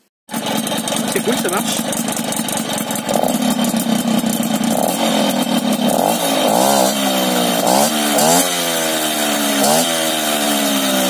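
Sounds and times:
moped engine revving: 0:00.3 - 0:11.0.

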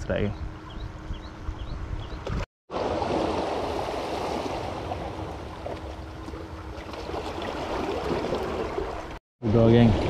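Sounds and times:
waves splashing against rocks: 0:02.7 - 0:09.2.

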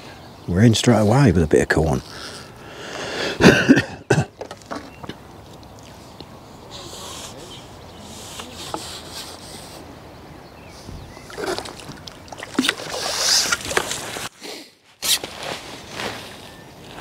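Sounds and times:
water sloshing in landing net: 0:11.3 - 0:14.3.

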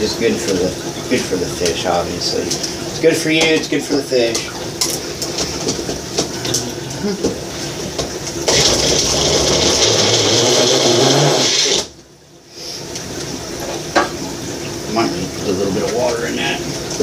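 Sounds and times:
blender motor chopping: 0:08.4 - 0:12.0.

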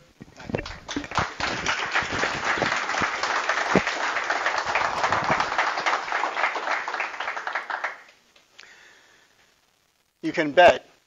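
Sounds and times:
people applauding: 0:00.3 - 0:08.2.

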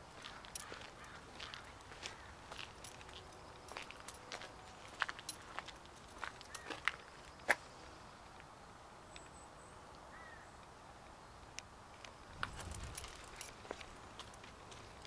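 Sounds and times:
faint bird chirp: 0:09.0 - 0:10.6.

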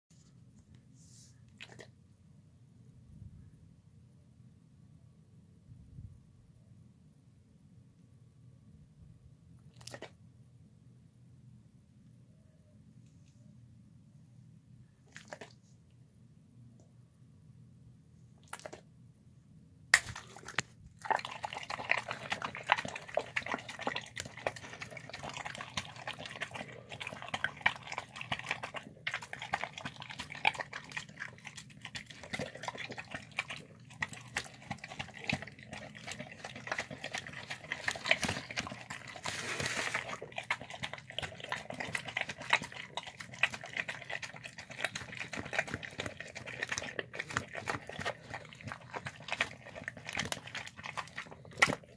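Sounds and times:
dog lapping and chewing: 0:09.8 - 0:10.1, 0:15.1 - 0:15.6, 0:18.4 - 0:18.8, 0:20.0 - 0:51.9.

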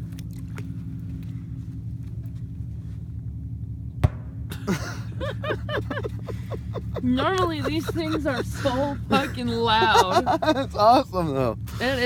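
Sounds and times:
steady low hum: 0:00.0 - 0:12.0
muffled underwater firecracker thump: 0:04.0 - 0:04.4.

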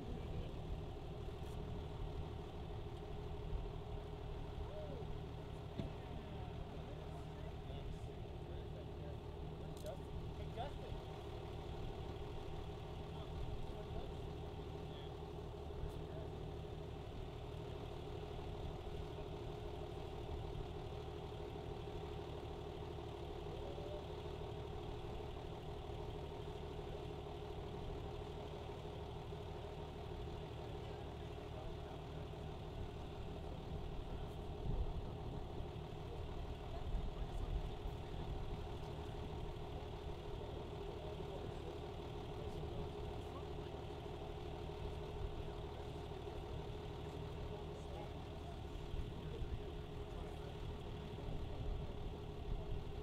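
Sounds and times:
engine idling: 0:00.0 - 0:53.0.

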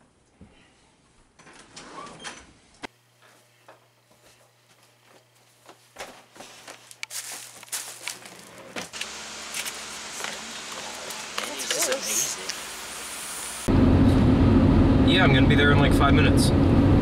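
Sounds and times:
rustling: 0:05.2 - 0:12.5.

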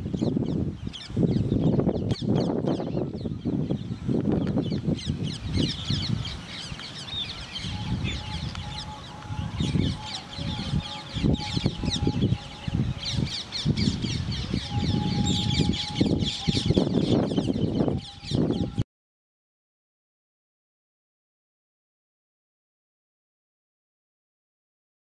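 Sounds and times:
birds chirping: 0:00.0 - 0:18.8.

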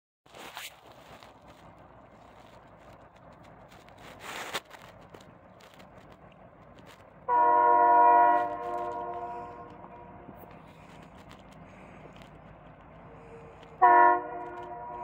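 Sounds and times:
locomotive air horn chord: 0:07.3 - 0:10.3, 0:13.8 - 0:15.0.

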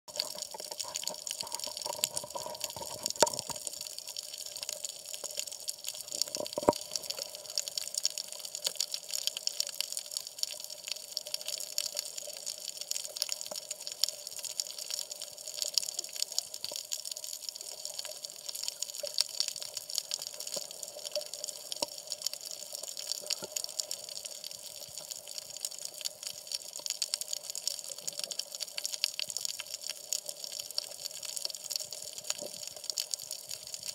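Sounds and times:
seawater sloshing and bubbling: 0:00.1 - 0:03.7
fine crackle of tiny clicks: 0:00.1 - 0:33.9.

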